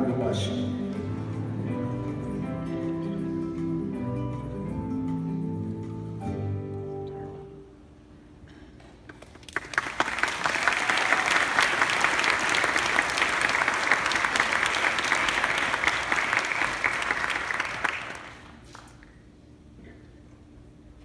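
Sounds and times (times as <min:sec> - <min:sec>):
crowd applauding: 0:09.1 - 0:19.1.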